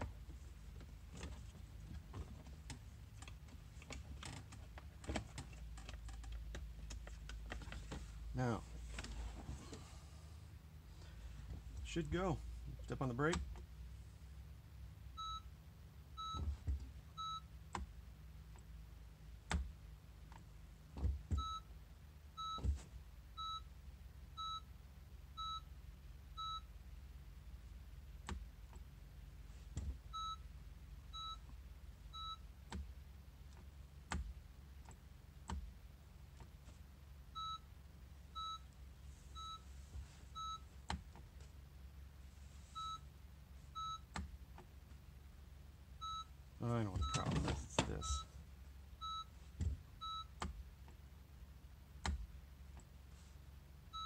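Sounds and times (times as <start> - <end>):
car warning chime beeping: 15.1 - 15.5, 16.1 - 17.6, 21.3 - 21.7, 22.4 - 22.7, 26.3 - 26.7, 30.1 - 30.5, 31.1 - 31.5, 32.1 - 32.6, 37.3 - 37.7, 38.3 - 38.7, 40.3 - 40.7, 43.7 - 44.1, 46.0 - 48.3, 49.0 - 49.4, 50.0 - 50.4.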